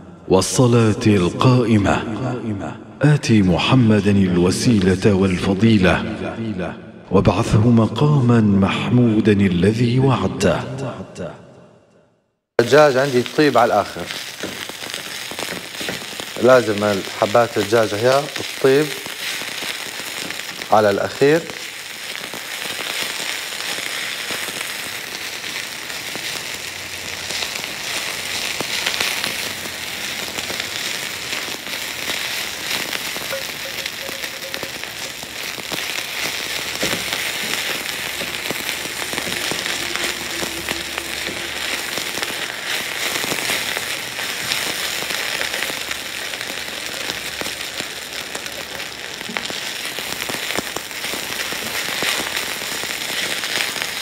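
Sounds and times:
chicken sizzling in frying pan: 12.6 - 54.0
spatula stirring in pan: 14.1 - 16.3.

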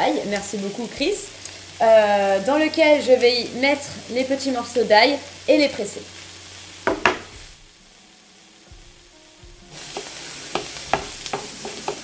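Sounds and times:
vegetables sizzling in a frying pan: 0.0 - 12.0
utensils tapping a pan: 6.8 - 7.4, 9.7 - 12.0.

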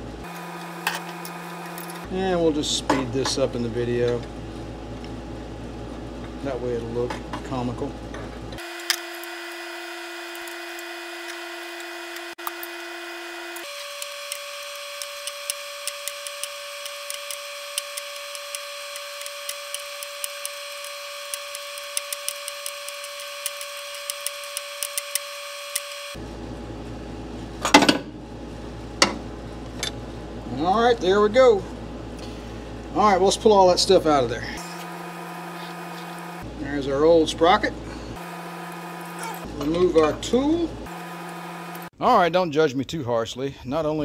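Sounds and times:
sped-up wrench clicking: 13.6 - 26.2.

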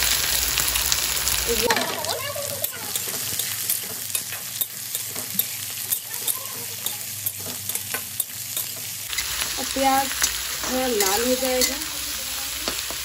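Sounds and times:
onions sizzling in hot oil: 0.0 - 13.0
spatula scraping and clicking on pan: 2.6 - 11.9.

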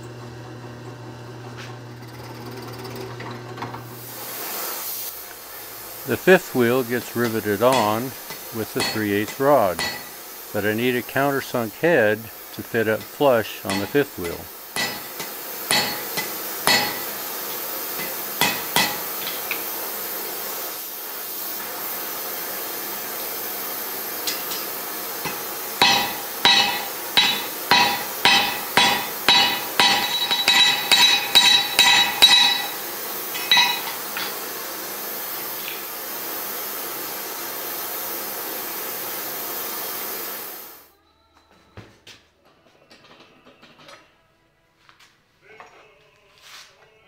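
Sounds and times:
torch flame hissing: 3.8 - 40.9
hammer striking hot metal: 6.4 - 10.3, 13.0 - 19.6, 24.2 - 34.5.

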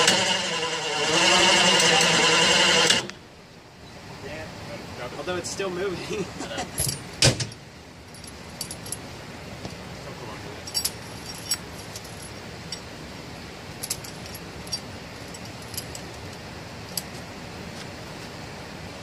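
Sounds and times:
steel chain clinking: 6.7 - 9.0, 10.6 - 12.9, 13.8 - 17.1.

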